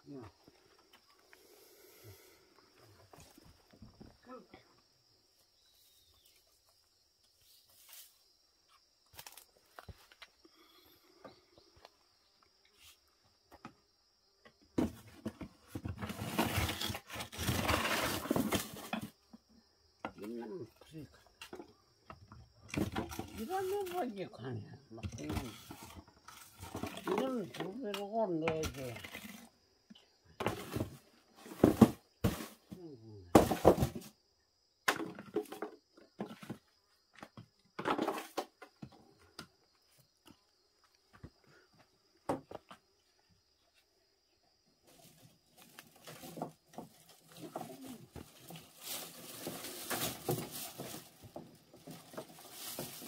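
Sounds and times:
dry material rustling and scraping: 44.9s - 53.0s.

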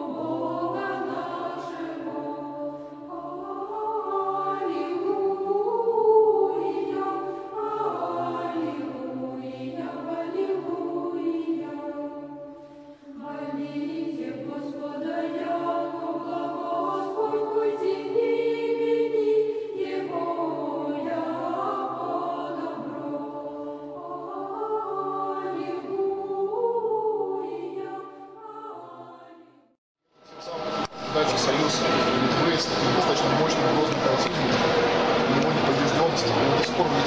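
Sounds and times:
choir singing chant: 0.0s - 37.0s
low held drone: 30.2s - 37.0s.

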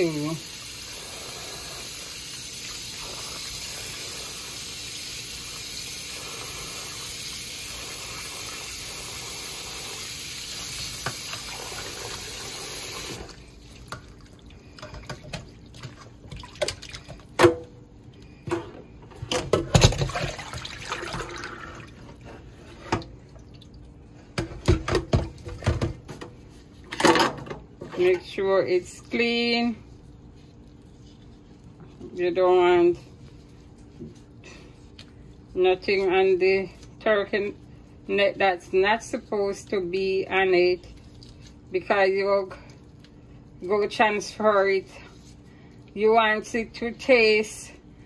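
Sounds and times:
tap water running into metal bowl: 9.7s - 17.5s
water poured into sink: 10.0s - 17.3s, 19.7s - 23.8s
wet meat handling with splashes: 13.2s - 18.4s, 19.7s - 22.2s, 40.8s - 41.7s.

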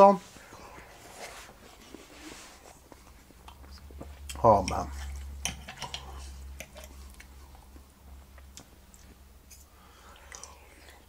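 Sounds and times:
person chewing: 2.8s - 11.0s.

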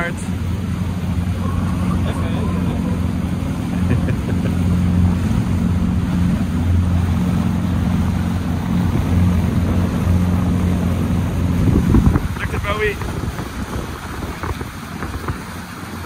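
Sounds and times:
boat engine humming: 0.0s - 16.0s
water rushing: 0.0s - 16.0s
wind noise on microphone: 8.4s - 16.0s.

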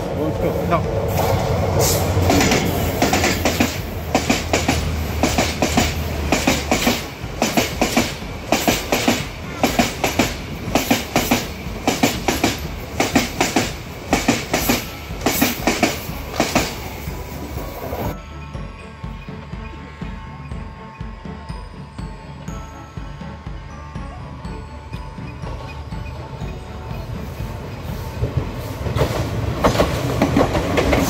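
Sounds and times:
train wheels clickety-clack: 0.0s - 18.1s, 25.3s - 31.0s
locomotive engine hum: 0.0s - 31.0s.

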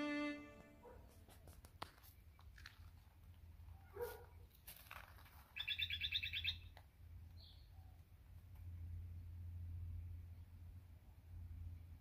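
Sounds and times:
small bird chirping: 5.5s - 8.0s.

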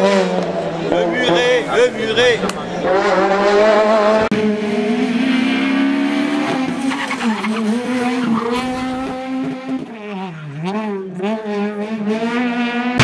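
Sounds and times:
rally car engine at high revs: 0.0s - 13.0s.

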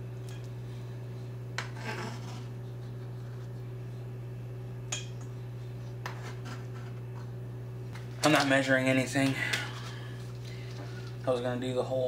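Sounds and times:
knife blade scraping: 1.6s - 2.6s.

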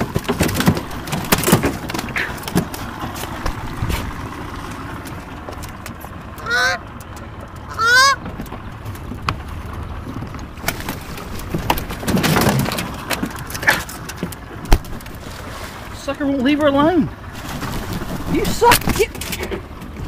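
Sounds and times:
goose honking: 6.4s - 6.9s, 7.7s - 8.2s.

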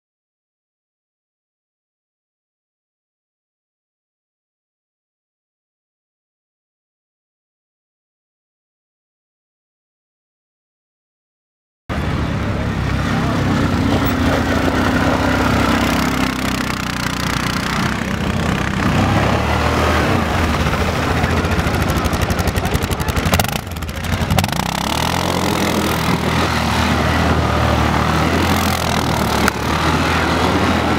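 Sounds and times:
quad bike engine revving: 11.9s - 30.9s.

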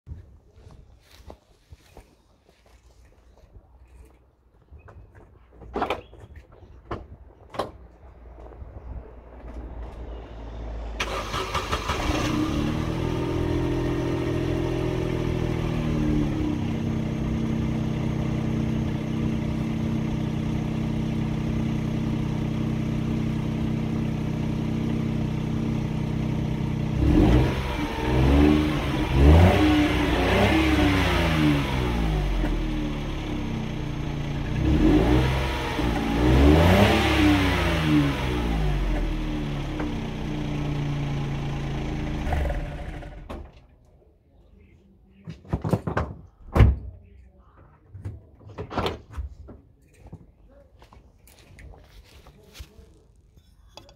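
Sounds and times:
car engine idling and revving: 8.0s - 43.7s.

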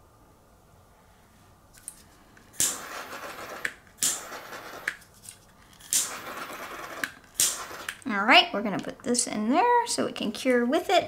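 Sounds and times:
handheld torch hissing: 2.5s - 5.0s, 5.8s - 8.0s.

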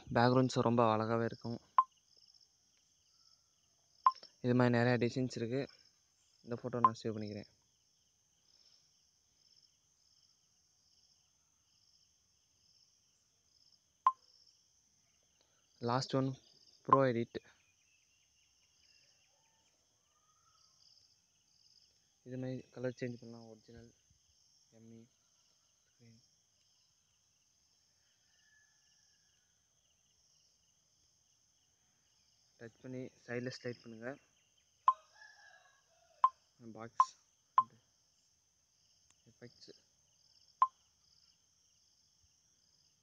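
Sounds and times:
cricket chirping faintly: 0.0s - 43.0s
insects trilling: 0.0s - 43.0s.

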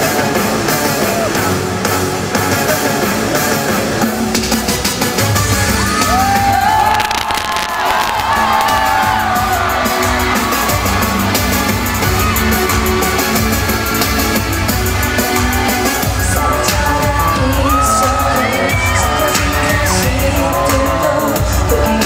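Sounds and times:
loud live pop music: 0.0s - 22.0s
crowd yelling and screaming: 5.2s - 22.0s.

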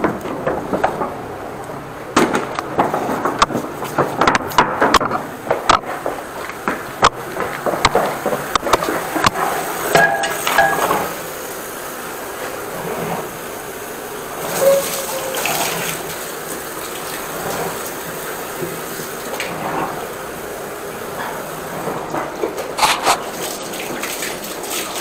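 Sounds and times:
knocks and clatter: 0.0s - 1.5s, 2.1s - 11.2s
water running and gushing: 5.2s - 25.0s.

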